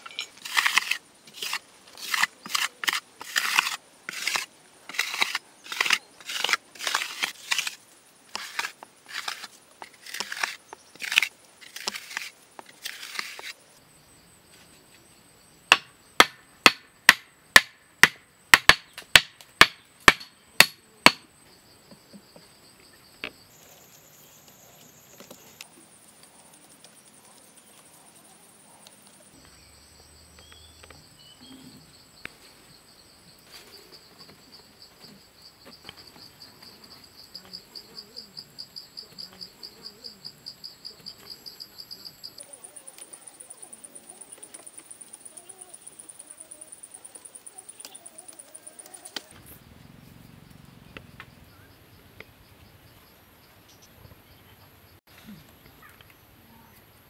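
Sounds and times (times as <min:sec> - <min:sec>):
hand tool scraping dried mud: 0:00.0 - 0:13.6
crickets chirping: 0:00.0 - 0:57.0.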